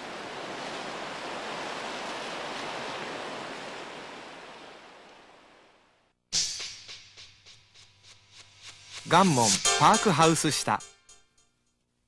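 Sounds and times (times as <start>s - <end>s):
sea waves washing over rocks: 0.0s - 5.4s.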